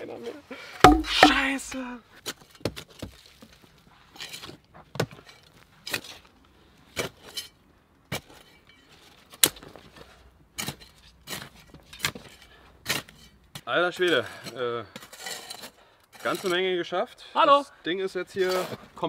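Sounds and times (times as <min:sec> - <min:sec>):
spade chopping into earth: 0:00.9 - 0:01.6.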